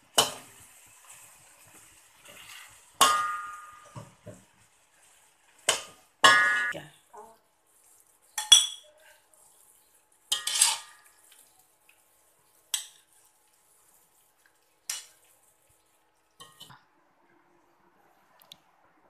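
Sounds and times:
metal spatula scraping a wok: 0:02.2 - 0:03.9, 0:10.3 - 0:11.2.

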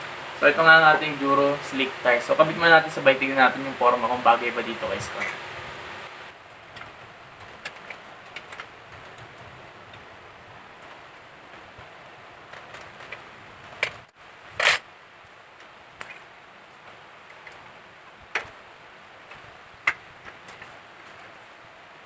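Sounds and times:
low steady hiss: 0:00.0 - 0:22.0
bike wheel clicks and knocks: 0:06.7 - 0:10.1, 0:12.5 - 0:14.8, 0:19.3 - 0:21.2.

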